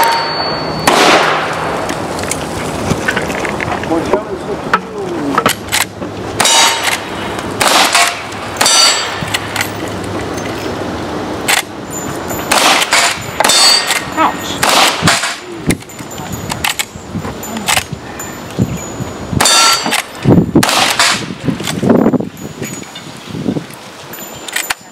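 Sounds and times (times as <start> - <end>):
steel plates clanging: 0.0 - 1.5, 5.4 - 10.8, 11.5 - 23.1
rifle shots: 0.0 - 1.8, 5.5 - 9.7, 12.5 - 15.4, 19.4 - 21.3.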